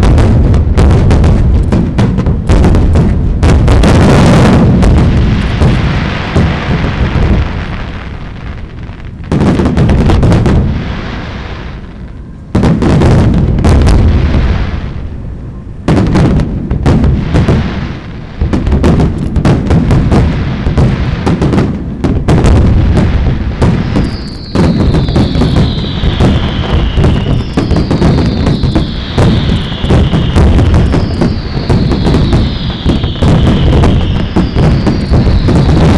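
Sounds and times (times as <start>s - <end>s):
fireworks bangs and crackling: 0.0s - 35.9s
firework whistles falling: 23.0s - 35.9s.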